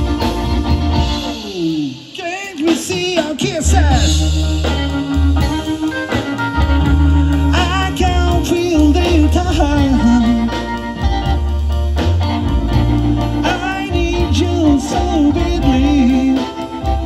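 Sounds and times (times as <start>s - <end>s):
double bass: 0.0s - 1.3s, 3.6s - 17.0s
electric guitar: 0.0s - 17.0s
electric keyboard: 0.0s - 17.0s.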